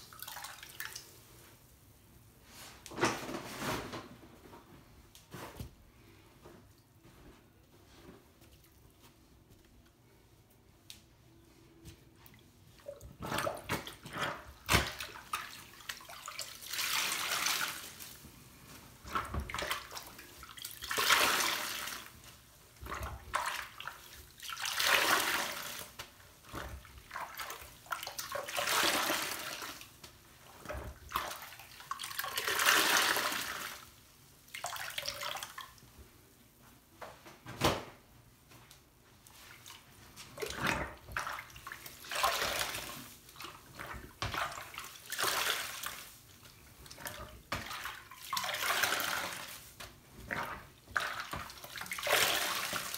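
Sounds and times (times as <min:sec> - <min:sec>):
wet squelches: 0:39.2 - 0:52.9.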